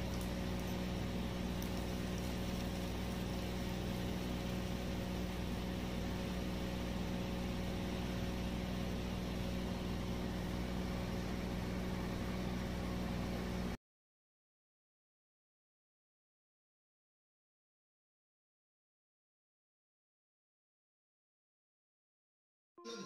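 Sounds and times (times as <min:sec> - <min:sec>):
constant hiss: 0:00.0 - 0:11.4
low electrical hum: 0:00.0 - 0:13.8.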